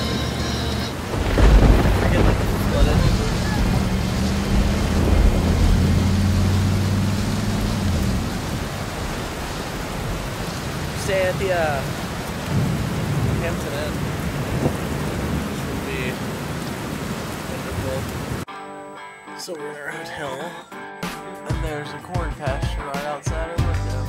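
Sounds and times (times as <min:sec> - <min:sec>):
steady rain hiss: 0:00.0 - 0:18.5.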